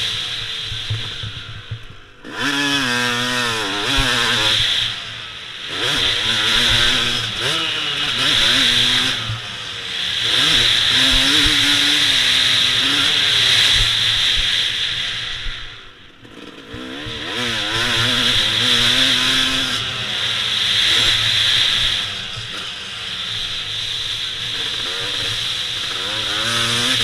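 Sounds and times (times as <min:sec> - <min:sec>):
dirt bike engine revving: 0:00.0 - 0:27.0.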